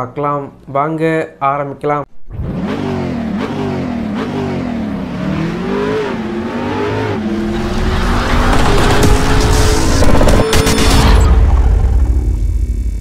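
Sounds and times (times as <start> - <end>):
car engine revving: 2.1 - 12.5.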